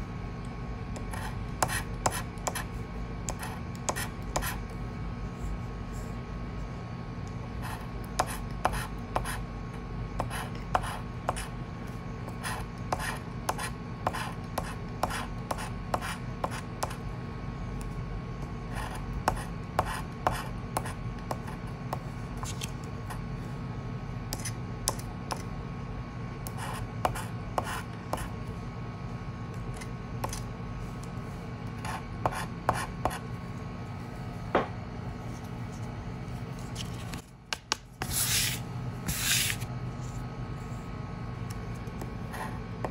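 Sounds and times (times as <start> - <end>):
steady low hum: 0.0 - 42.9
scratch card being scraped: 38.0 - 40.2.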